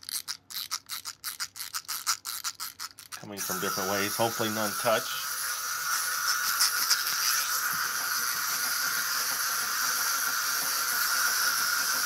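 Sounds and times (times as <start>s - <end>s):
wind-up toys whirring: 0.0s - 12.0s.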